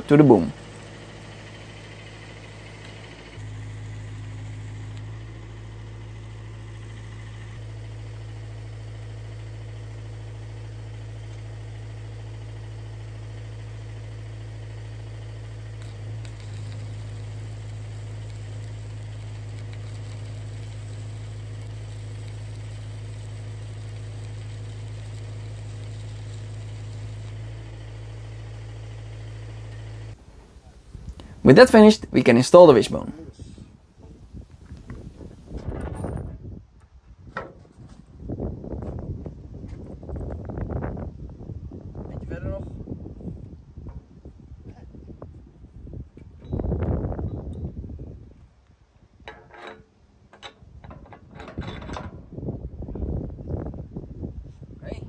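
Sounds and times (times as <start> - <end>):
welding arc hissing and crackling: 0.0 - 7.6, 14.3 - 30.2
welding machine hum: 0.0 - 32.0.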